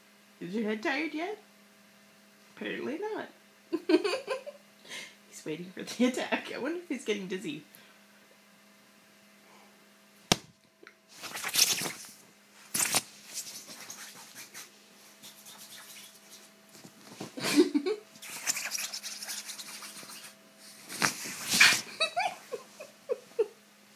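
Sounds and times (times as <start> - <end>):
bedding rustling: 20.6 - 22.0.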